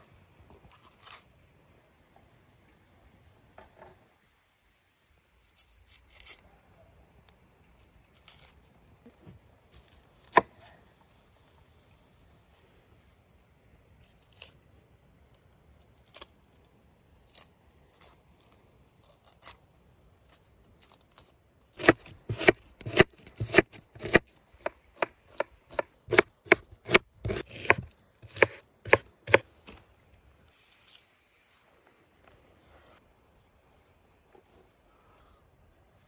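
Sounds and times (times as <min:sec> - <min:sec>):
knife chopping on wooden board: 0:21.8 - 0:29.4.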